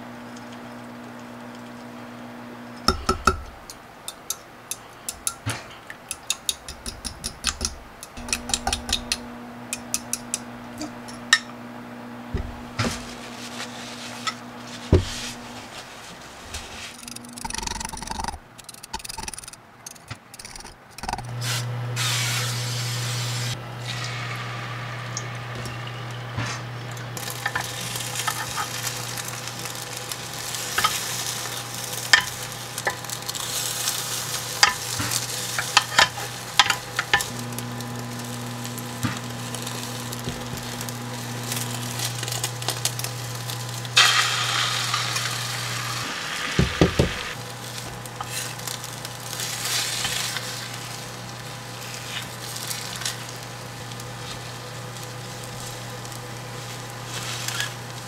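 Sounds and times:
spatulas tapping pan: 2.9 - 10.5, 27.4 - 37.3
egg sizzling in a pan: 20.4 - 58.0.

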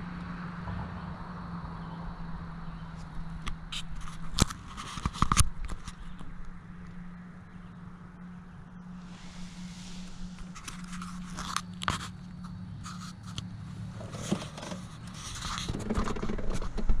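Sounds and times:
steady low hum: 0.0 - 15.4
camera handling scrapes and knocks: 3.7 - 6.3, 10.4 - 17.0.

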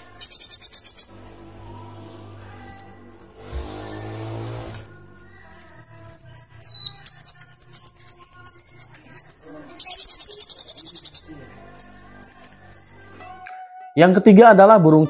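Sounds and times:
sunbird singing: 0.0 - 4.5, 5.3 - 13.1
faint background music: 0.0 - 15.0.

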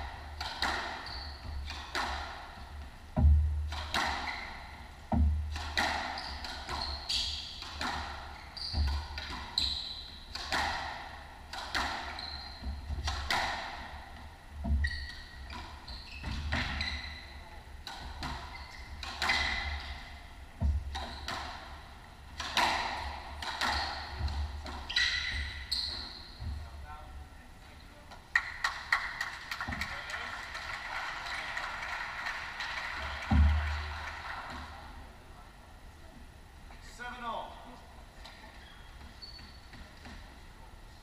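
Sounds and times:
squash ball hits: 0.3 - 2.4, 3.2 - 4.4, 5.1 - 9.6, 10.3 - 14.0, 22.4 - 26.5
shoes squeaking: 0.4 - 2.8, 3.8 - 10.7, 11.7 - 13.5, 14.6 - 27.2, 38.2 - 40.4.

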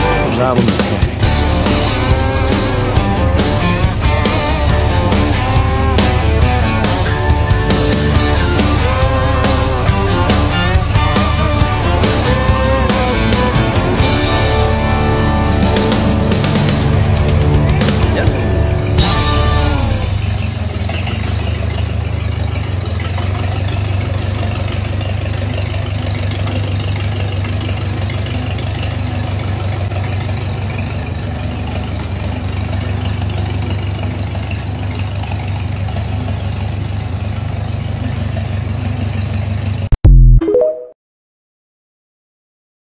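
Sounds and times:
loud burst: 0.0 - 21.0
tractor engine running: 0.0 - 40.0.

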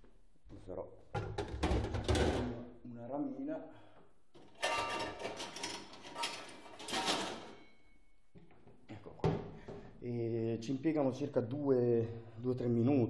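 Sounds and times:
metal utensils clattering in drawer: 4.5 - 7.7.

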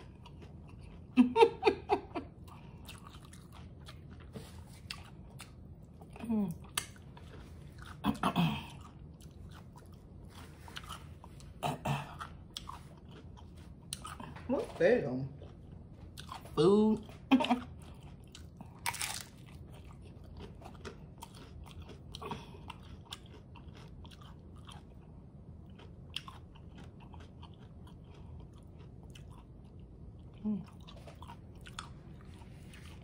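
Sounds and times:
crunchy chewing: 0.0 - 1.4, 2.3 - 33.0.

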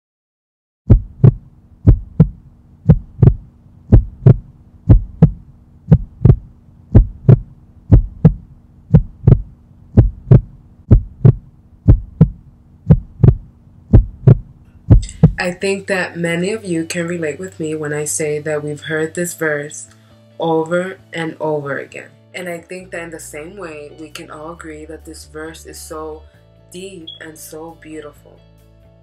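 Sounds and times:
heartbeat thumps: 0.9 - 15.5
faint low hum: 0.9 - 16.0.

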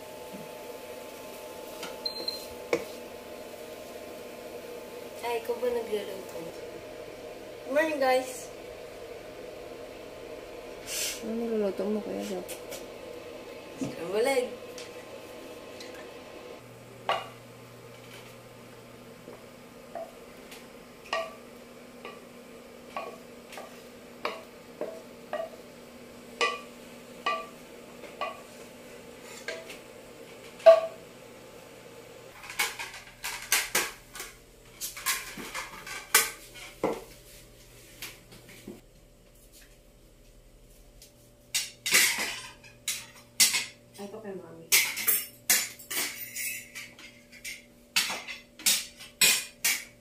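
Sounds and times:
faint steady hum: 0.0 - 48.0
clatter of utensils and dishes: 32.4 - 36.7, 41.6 - 43.7, 44.7 - 49.9.

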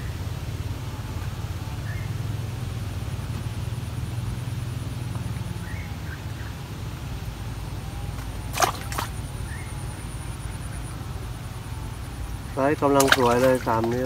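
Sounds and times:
low outdoor rumble: 0.0 - 14.0
faint bird chirps: 1.2 - 2.3, 4.8 - 6.6, 9.1 - 12.7.

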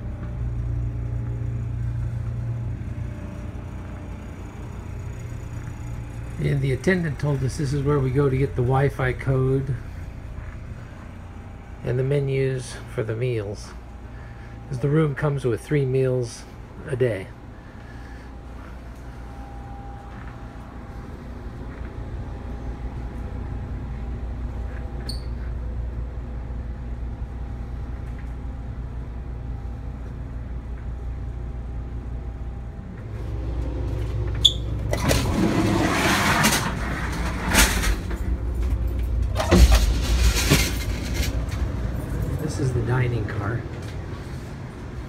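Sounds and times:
train car hum: 0.0 - 45.0
rushing noise and clatter: 33.0 - 44.1.

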